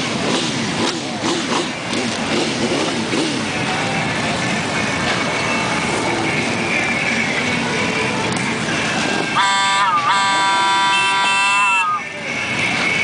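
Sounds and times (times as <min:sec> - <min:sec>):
motorcycle engines running: 0:00.0 - 0:13.0
horn blaring: 0:09.3 - 0:12.2.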